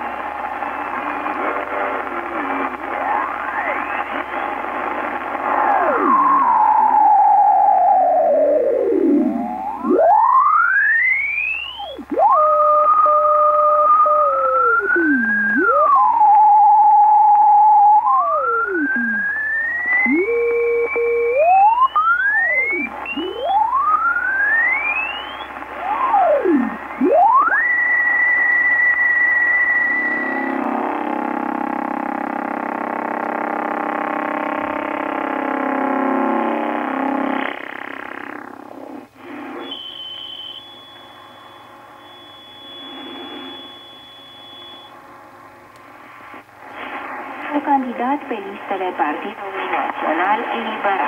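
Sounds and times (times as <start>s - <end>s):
radio heterodyne whistles: 2.6s - 30.5s, 39.2s - 45.0s.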